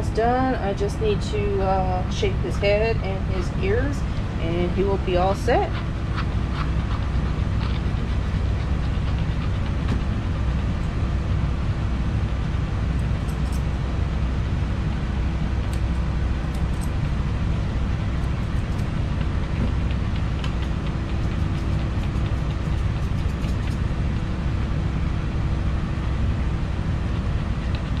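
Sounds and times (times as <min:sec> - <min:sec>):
faint constant tone: 0:00.0 - 0:28.0
machine hum: 0:00.0 - 0:28.0
scissors snipping: 0:13.0 - 0:13.6, 0:15.7 - 0:17.0, 0:18.2 - 0:23.8.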